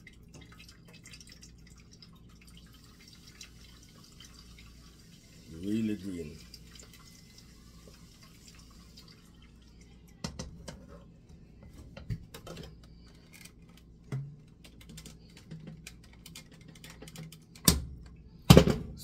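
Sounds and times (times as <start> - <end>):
juice dripping: 0.0 - 10.3.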